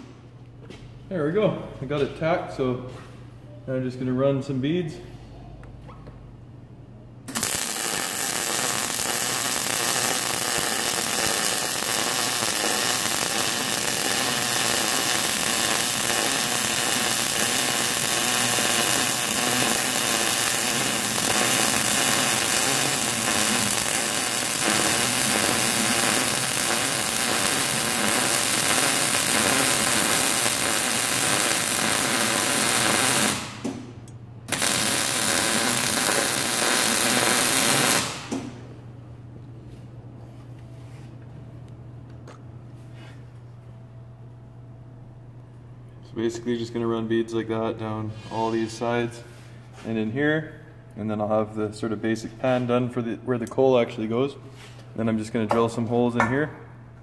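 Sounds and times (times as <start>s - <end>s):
electric arc welding crackling: 7.3s - 33.6s, 34.5s - 38.6s.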